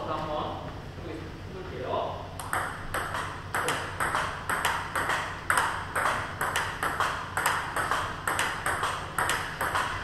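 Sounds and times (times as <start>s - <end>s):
ping pong ball bouncing on table: 2.4s - 10.0s
ping pong ball clicking off rackets: 2.4s - 10.0s.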